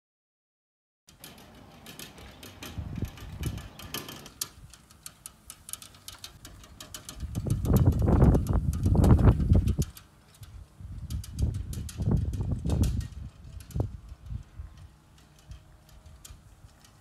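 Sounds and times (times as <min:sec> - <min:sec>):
bicycle trailer rolling over grass: 0:01.1 - 0:17.0
wind buffeting microphone: 0:02.5 - 0:04.8, 0:07.0 - 0:16.8.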